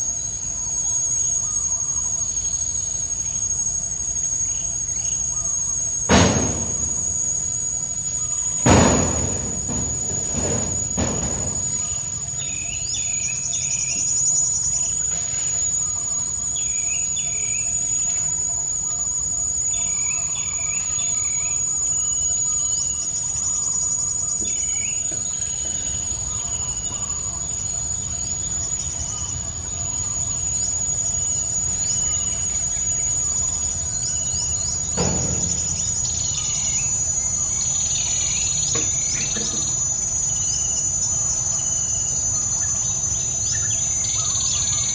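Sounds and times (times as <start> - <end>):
high-pitched insect drone: 0.0 - 44.9
brief knock: 6.1 - 7.0, 8.7 - 12.0, 34.9 - 36.4, 38.7 - 39.8
birds chirping: 6.1 - 17.9, 19.7 - 44.9.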